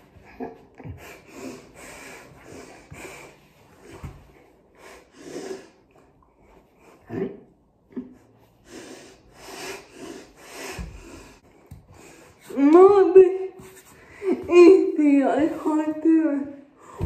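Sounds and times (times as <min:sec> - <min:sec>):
person breathing heavily through nose: 0:01.0 - 0:05.9, 0:08.5 - 0:12.5.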